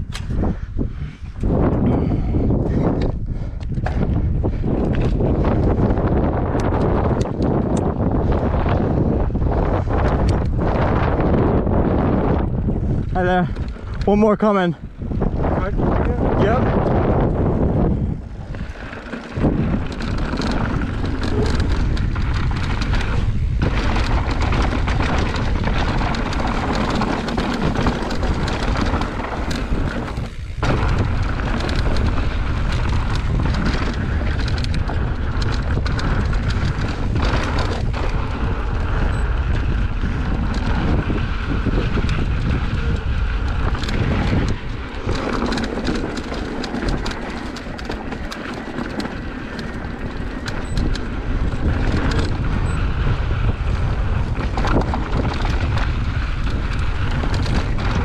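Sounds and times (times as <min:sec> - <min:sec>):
steady rumble: 0:00.0 - 0:58.0
wind buffeting microphone: 0:00.0 - 0:58.0
bike rattles and knocks: 0:01.2 - 0:58.0.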